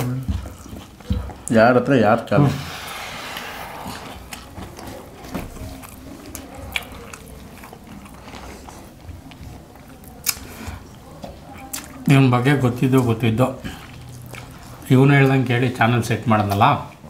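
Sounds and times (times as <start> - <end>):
chewing and mouth sounds: 0.0 - 1.6, 3.9 - 15.7.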